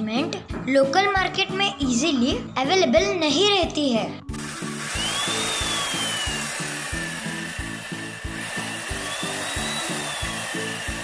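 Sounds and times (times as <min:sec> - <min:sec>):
music with steady beat: 0:04.2 - 0:11.0
electric chainsaw whirring: 0:04.3 - 0:11.0.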